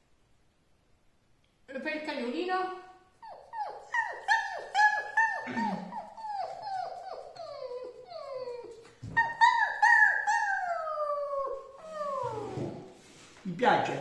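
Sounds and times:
man imitating dog yelps: 3.6 - 6.5.

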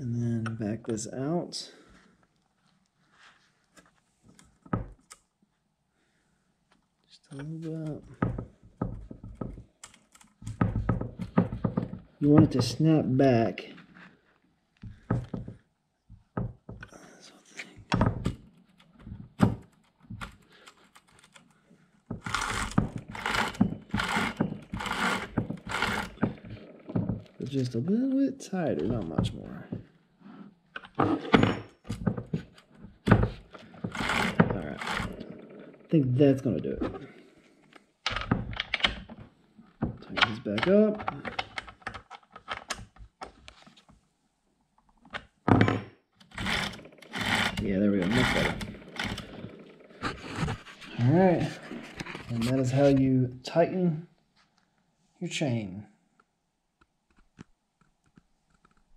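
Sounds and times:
rasping chain pulls: 22.2 - 27.3, 33.7 - 35.8, 46.2 - 50.0
chainsaw chain rattling and clicking: 22.2 - 27.4, 33.6 - 35.9, 46.2 - 50.0
tool thunk on wooden bench: 31.0 - 32.4, 45.5 - 45.9.

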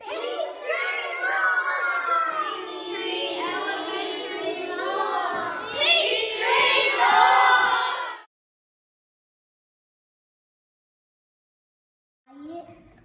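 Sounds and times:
children shouting and cheering: 0.0 - 8.3.

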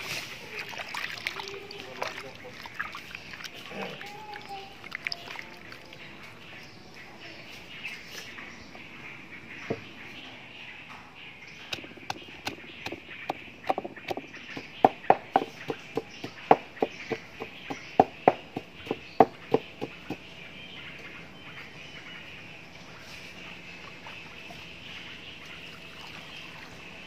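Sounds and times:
wooden pestle pounding in mortar: 11.7 - 20.2.

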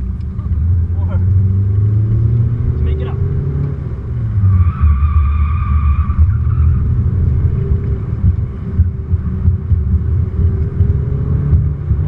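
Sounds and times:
low cabin rumble: 3.9 - 12.0.

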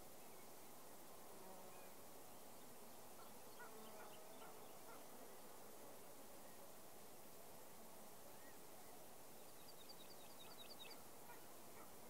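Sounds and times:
outdoor hiss: 0.0 - 3.6
faint bumblebee buzz: 0.0 - 9.8.

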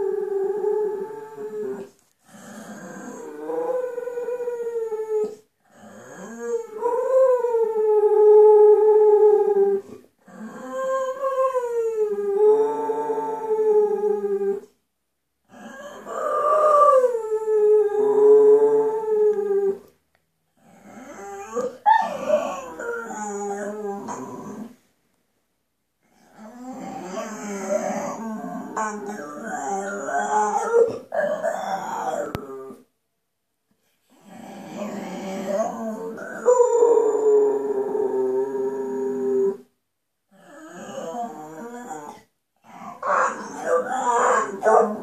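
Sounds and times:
dog howling: 6.1 - 14.7, 15.6 - 19.8, 21.0 - 24.7, 26.4 - 32.8, 34.8 - 39.6, 42.9 - 45.0.

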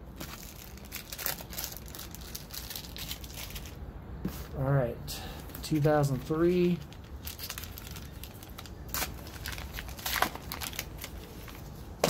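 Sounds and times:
wrapper tearing and crinkling: 0.2 - 3.8, 6.8 - 11.7.

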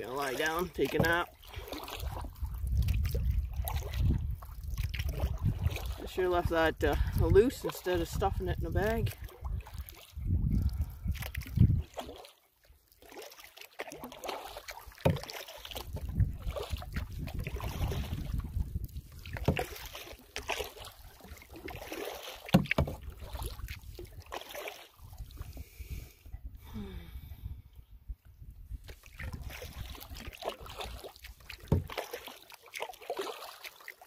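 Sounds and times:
paddle strokes: 0.0 - 26.4, 28.8 - 34.0
water sloshing along canoe hull: 0.0 - 26.8, 27.4 - 34.0
wind on microphone: 1.6 - 12.0, 15.8 - 19.7, 25.0 - 30.2.

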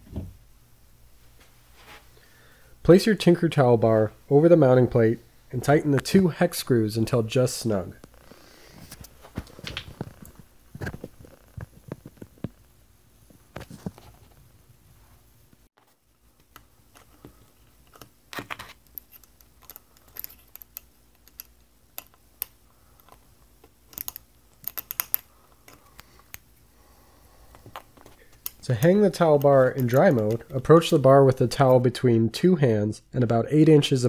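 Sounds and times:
hex key clicking and scraping: 17.8 - 26.4.

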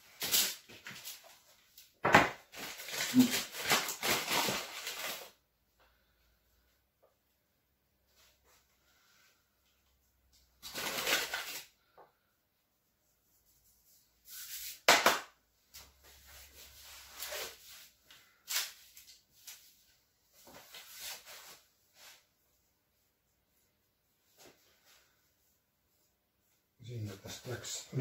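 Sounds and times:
paper flour bag rustling: 2.4 - 5.4.

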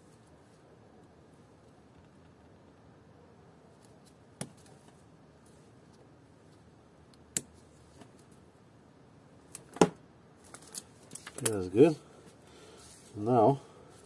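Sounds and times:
quiet background hum: 0.0 - 14.0.

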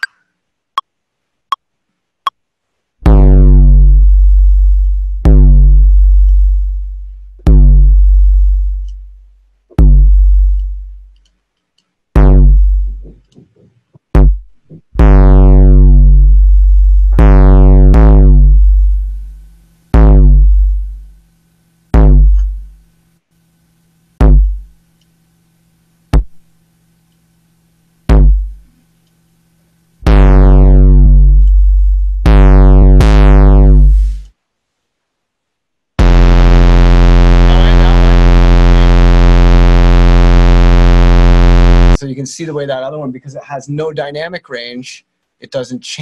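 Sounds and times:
deep electronic bass notes: 3.0 - 11.2, 12.1 - 13.4, 14.1 - 21.3, 21.9 - 22.9, 24.2 - 24.8, 28.0 - 28.7, 30.0 - 34.3, 36.0 - 42.0.

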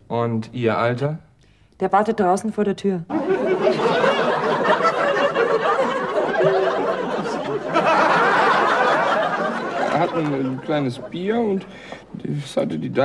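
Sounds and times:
audience laughing: 3.1 - 11.8.

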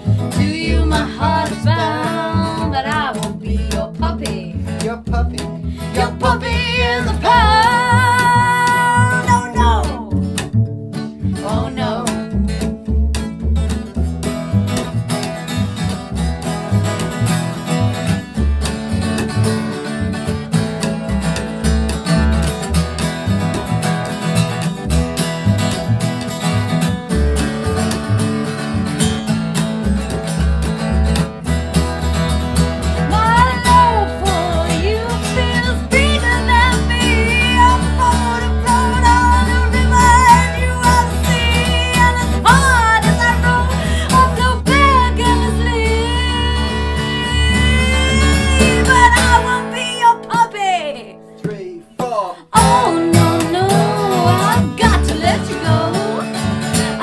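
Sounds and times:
high wavering wordless melody: 0.0 - 10.2, 11.2 - 12.6, 33.1 - 56.4
acoustic guitar: 0.0 - 57.0
plucked double bass: 0.0 - 57.0.

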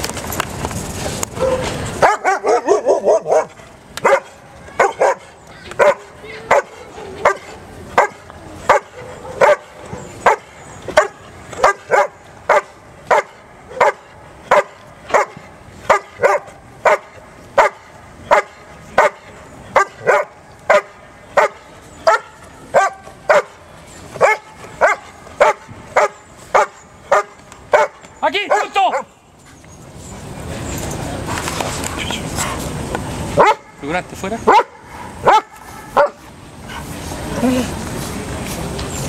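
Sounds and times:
dog barking: 1.4 - 23.6, 24.2 - 29.1, 33.4 - 33.7, 34.5 - 36.2.

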